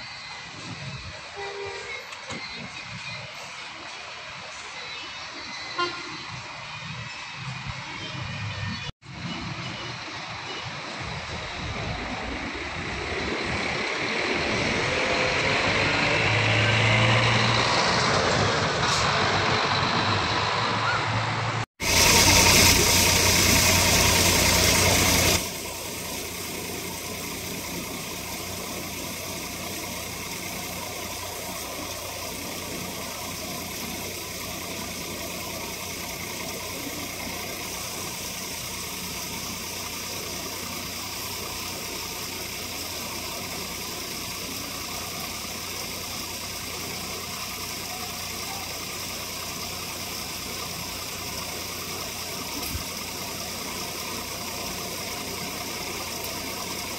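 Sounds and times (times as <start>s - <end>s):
diesel engine idling: 9.2s - 56.9s
loud rushing hiss: 21.7s - 56.9s.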